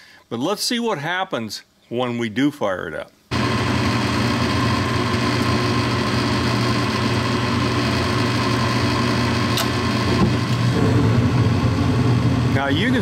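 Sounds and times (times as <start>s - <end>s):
furnace motor hum: 3.3s - 13.0s
gas burners rushing: 3.3s - 13.0s.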